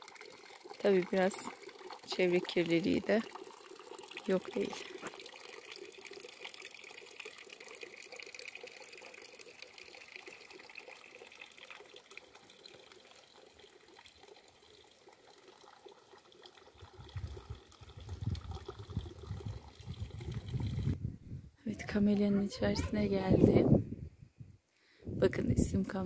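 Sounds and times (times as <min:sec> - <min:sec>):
babble of running water: 0:00.0 - 0:05.5, 0:21.7 - 0:23.8.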